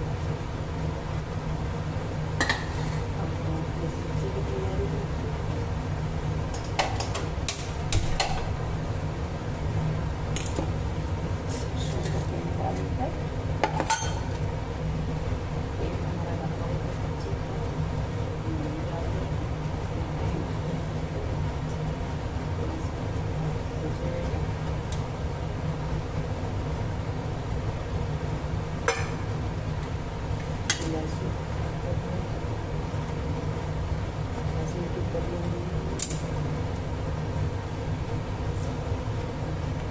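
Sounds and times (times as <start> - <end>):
steady low hum: 0.0 - 39.9
steel bowl clinking against metal pan: 13.8 - 14.3
steady low rumble: 14.4 - 39.9.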